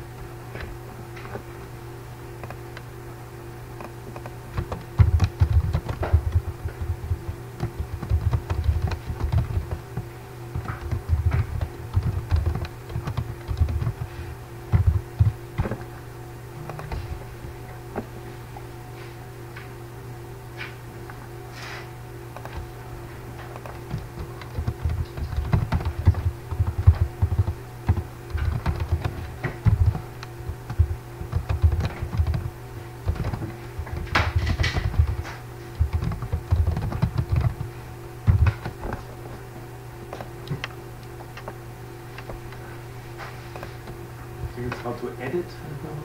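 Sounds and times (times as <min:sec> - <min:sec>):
computer keyboard typing: 0:03.8 - 0:15.9, 0:16.7 - 0:17.1, 0:22.4 - 0:22.7, 0:23.4 - 0:39.0, 0:40.1 - 0:41.6.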